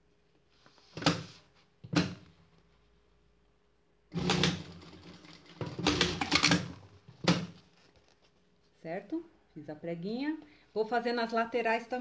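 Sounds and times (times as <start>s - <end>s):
sewing machine stitching: 4.1s - 6.8s.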